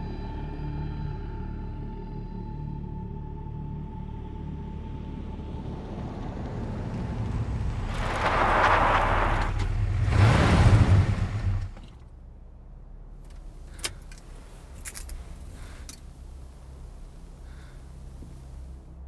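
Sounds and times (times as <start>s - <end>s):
car engine and tyres on dirt: 4.4s - 19.0s
low steady hum: 11.0s - 19.0s
small clicks: 13.3s - 16.5s.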